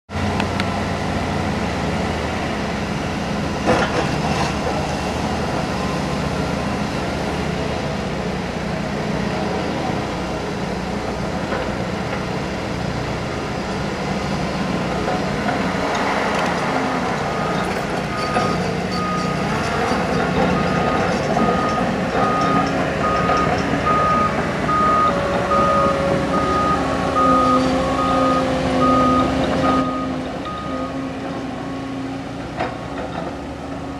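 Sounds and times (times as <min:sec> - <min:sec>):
diesel engine running: 0:00.1 - 0:33.9
reversing alarm beeping: 0:17.3 - 0:19.5, 0:20.5 - 0:31.1.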